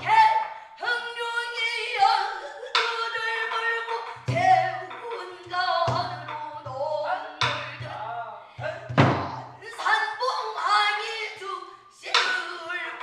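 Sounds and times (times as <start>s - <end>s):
woman singing long wavering notes: 0.0s - 13.0s
barrel drum strikes: 8.9s - 9.6s.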